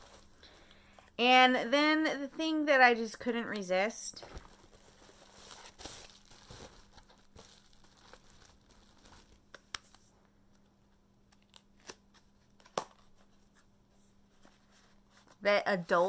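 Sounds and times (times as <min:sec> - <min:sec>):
cardboard box crinkling: 0:04.2 - 0:09.4.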